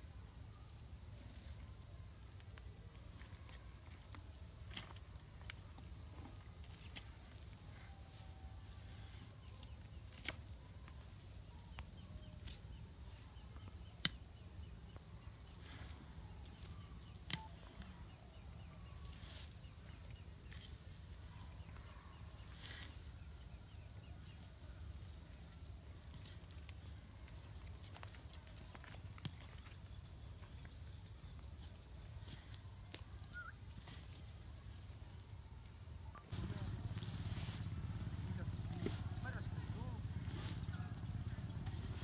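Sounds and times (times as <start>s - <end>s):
high-pitched insect chorus: 0.0s - 42.0s
low steady rumble: 36.3s - 42.0s.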